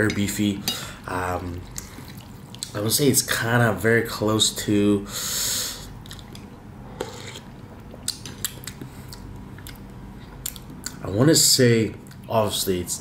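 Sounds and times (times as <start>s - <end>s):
mouth sounds while eating: 5.8s - 11.0s.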